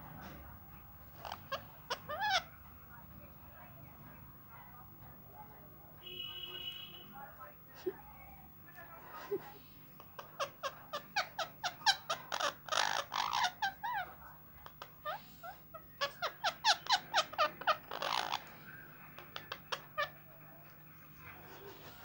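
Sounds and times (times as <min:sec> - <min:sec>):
parakeets chirping: 0:00.0 - 0:03.7, 0:09.9 - 0:22.0.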